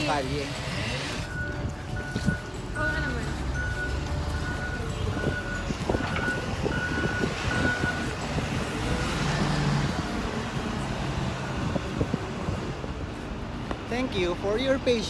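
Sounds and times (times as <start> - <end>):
heavy machine engine rumble: 0.3 - 13.6
reversing alarm beeping: 1.1 - 8.2.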